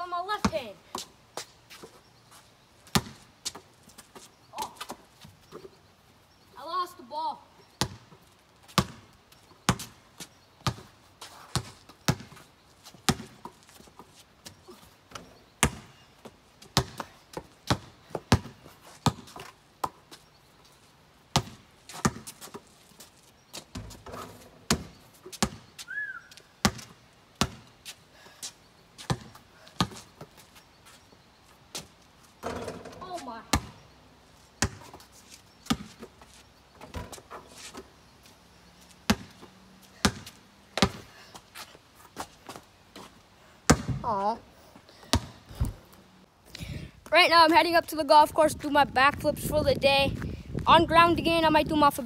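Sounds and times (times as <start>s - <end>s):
basketball bouncing: 2.9s - 3.2s, 7.8s - 8.0s, 8.7s - 9.0s, 11.5s - 12.4s, 13.1s - 13.5s, 15.6s - 15.9s, 16.7s - 20.0s, 21.3s - 22.4s, 23.7s - 25.6s, 26.6s - 27.7s, 32.4s - 33.8s, 34.6s - 34.9s, 39.1s - 41.0s, 43.7s - 44.2s, 45.1s - 45.8s.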